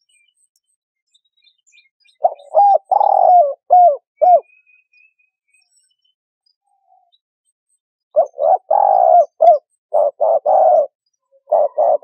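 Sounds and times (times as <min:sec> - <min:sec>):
faint small birds chirping: 0:00.0 - 0:12.0
dove cooing: 0:02.2 - 0:04.5, 0:08.2 - 0:12.0.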